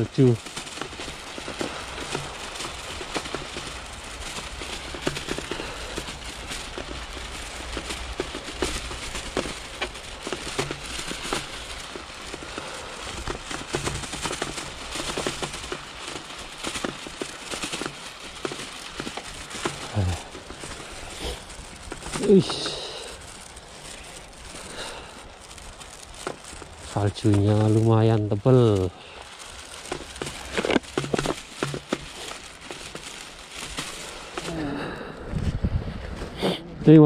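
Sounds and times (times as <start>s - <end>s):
bicycle rattles: 0.0s - 37.0s
bicycle tyres crunching snow and leaves: 0.0s - 37.0s.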